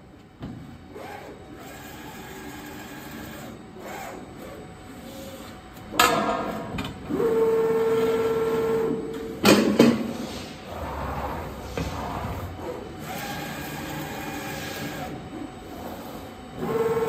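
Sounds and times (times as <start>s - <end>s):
low machine running noise: 0.0s - 17.0s
steady high machine hum: 0.0s - 17.0s.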